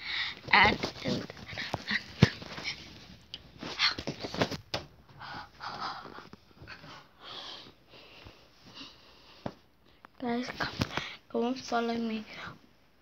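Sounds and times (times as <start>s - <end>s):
breathing and sniffing: 5.1s - 9.7s.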